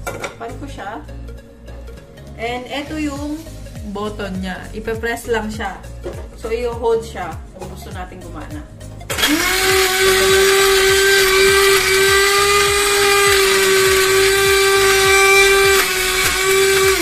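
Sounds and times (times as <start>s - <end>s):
blade grinding crackers: 9.1s - 17.0s
electric grinder motor whine: 9.1s - 17.0s.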